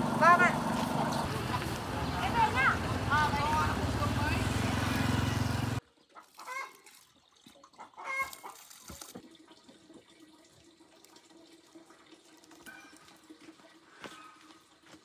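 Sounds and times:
chickens clucking: 7.8 - 8.6.

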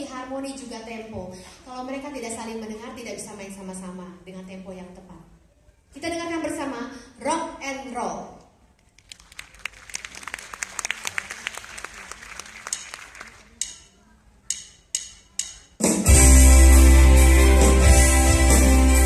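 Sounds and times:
audience applauding: 9.0 - 13.6
electronic keyboards playing: 16.0 - 19.0.

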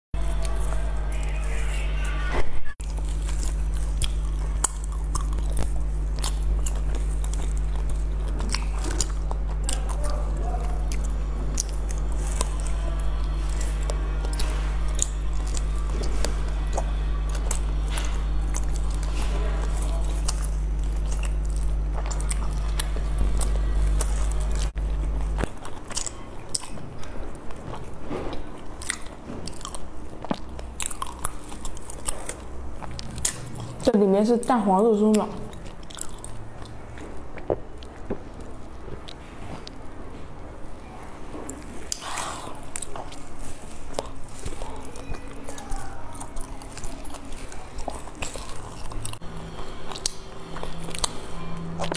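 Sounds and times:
person chewing sticky food: 0.2 - 1.8, 2.8 - 51.9
low hum: 0.2 - 51.9
mouth clicks and smacks: 35.1 - 39.2.

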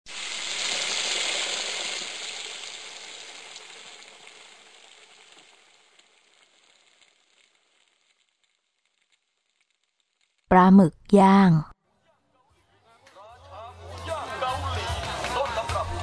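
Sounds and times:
squid sizzling on a grill: 0.1 - 10.5.

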